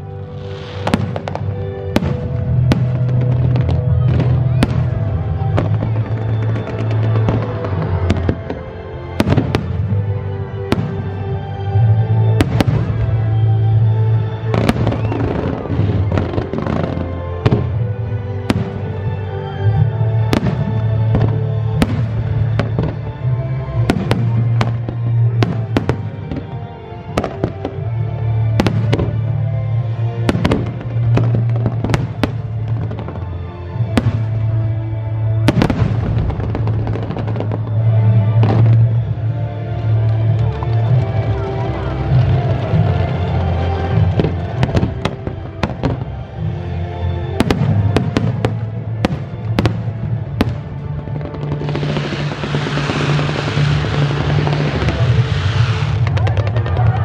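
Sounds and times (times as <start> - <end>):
music with deep bass: 0.0 - 57.0
fireworks bursting bangs: 0.4 - 10.1, 10.7 - 11.2, 14.5 - 19.0, 30.2 - 33.2, 33.9 - 34.4, 35.4 - 39.1, 47.4 - 57.0.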